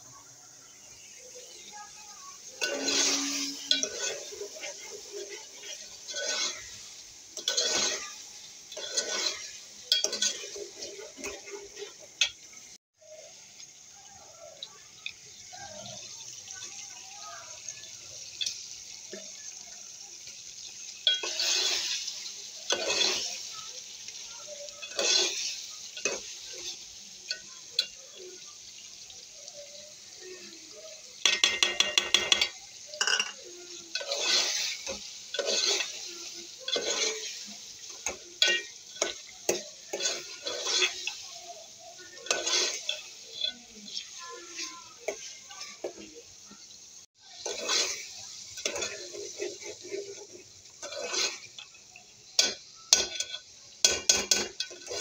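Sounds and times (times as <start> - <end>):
faint steady hiss: 0.0 - 55.0
metal spoon scraping in pot: 2.6 - 12.0, 21.0 - 23.3, 24.8 - 28.0, 31.3 - 36.0, 36.6 - 41.2, 42.0 - 46.0, 47.4 - 51.8, 52.4 - 55.0.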